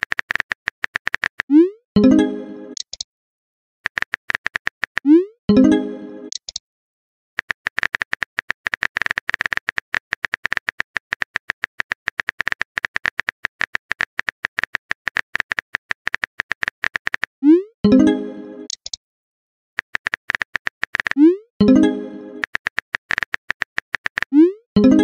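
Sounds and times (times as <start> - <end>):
phone keyboard typing clicks: 0.0 - 1.6, 2.8 - 3.0, 3.9 - 5.2, 6.3 - 6.6, 7.4 - 17.4, 18.7 - 19.0, 19.8 - 21.8, 22.4 - 24.4
chat chime: 2.0 - 2.8, 5.5 - 6.3, 17.9 - 18.7, 21.6 - 22.4, 24.8 - 25.0.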